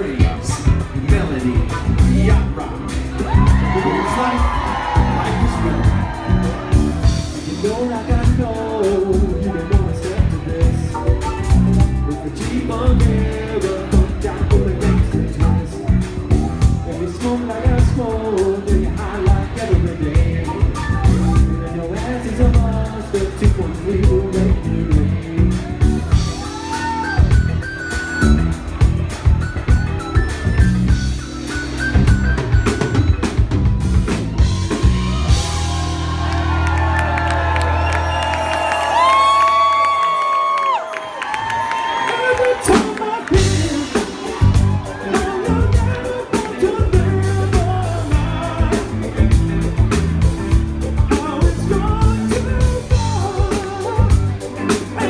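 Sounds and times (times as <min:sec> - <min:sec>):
man singing into a microphone: 0:00.0 - 0:16.0, 0:16.8 - 0:26.4, 0:41.9 - 0:49.4, 0:51.0 - 0:55.0
drum beat: 0:00.0 - 0:21.8, 0:22.4 - 0:37.2, 0:42.6 - 0:55.0
electric bass guitar: 0:00.0 - 0:39.9, 0:43.2 - 0:55.0
live band playing: 0:00.0 - 0:55.0.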